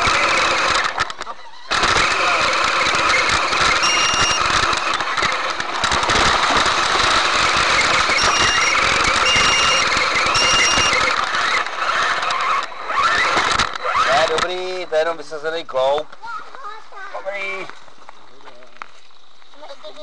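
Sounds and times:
electric motor whine: 0.0 - 14.8
rc car rattling over leaves: 0.0 - 16.0, 16.6 - 20.0.

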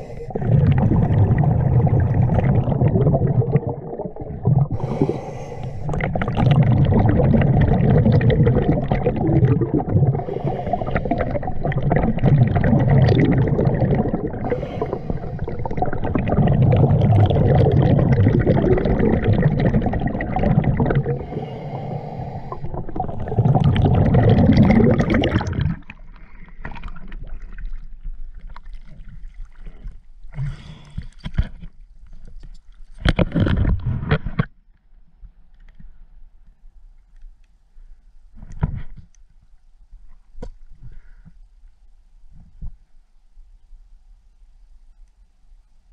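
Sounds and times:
underwater bubbles rumbling: 0.0 - 30.0.

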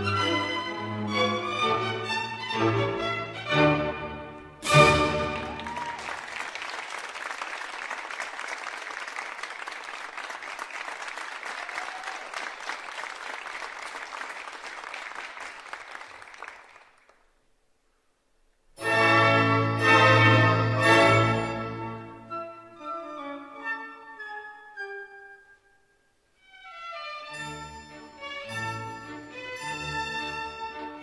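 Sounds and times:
audience applauding: 5.0 - 17.3.

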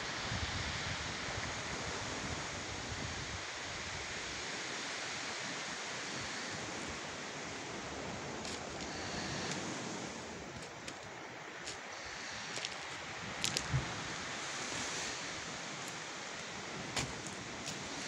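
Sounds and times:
sea surf: 0.0 - 18.0
wind buffeting microphone: 12.3 - 15.9.

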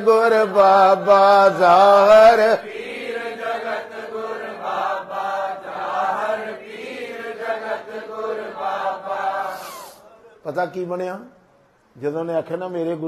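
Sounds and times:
voices chanting devotional song: 0.0 - 10.5.

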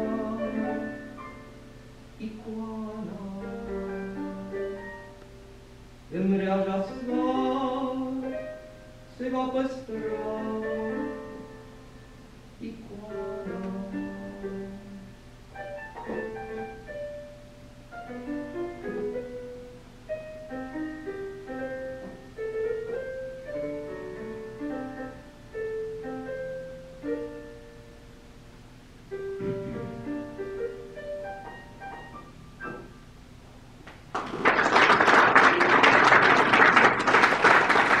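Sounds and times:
piano playing slow song: 0.0 - 33.8
audience applause: 34.1 - 38.0.

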